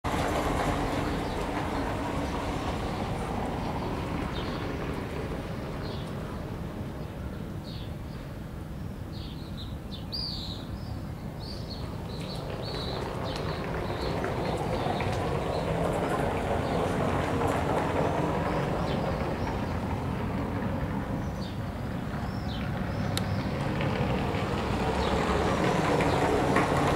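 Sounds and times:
small birds chirping: 2.9s - 4.7s, 6.9s - 15.8s, 21.2s - 23.6s.

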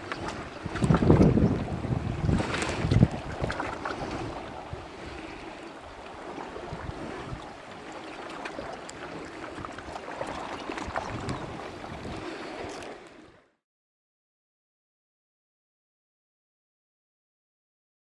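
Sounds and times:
small waves washing against rocks: 0.0s - 13.2s
wind on microphone: 0.0s - 13.4s.

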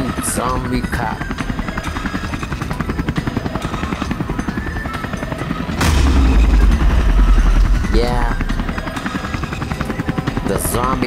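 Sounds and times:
helicopter rotor chopping: 0.0s - 11.0s
loud thump with deep rumble: 5.8s - 9.4s.

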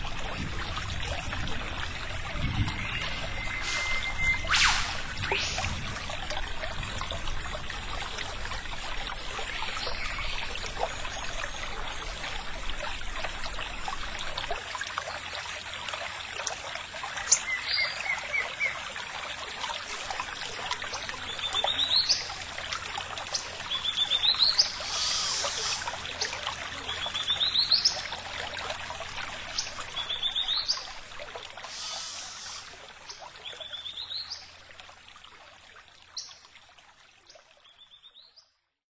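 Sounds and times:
trickle of running water: 0.0s - 38.6s
bird calling: 3.0s - 5.7s, 24.7s - 25.9s.

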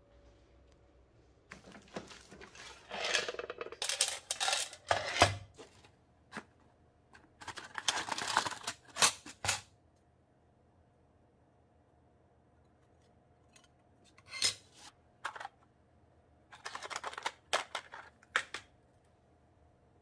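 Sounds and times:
plastic boxes clattering: 1.5s - 6.6s, 7.3s - 9.6s, 16.6s - 18.7s.

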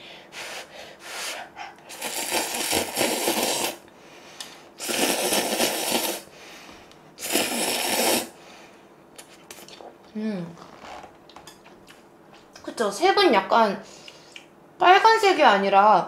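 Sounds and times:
person slurping noodles: 1.1s - 3.8s, 4.8s - 6.3s, 7.2s - 8.4s.

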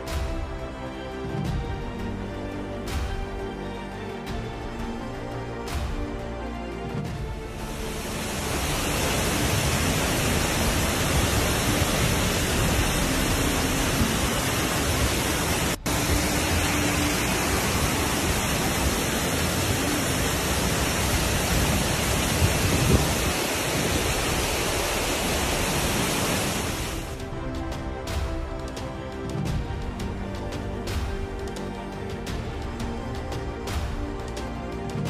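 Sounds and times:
floodwater rushing over rocks: 7.2s - 28.6s.

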